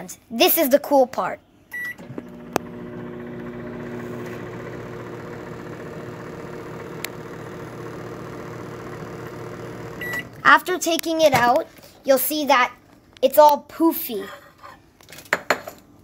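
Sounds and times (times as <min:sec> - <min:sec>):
microwave oven humming: 0:01.8 - 0:10.5.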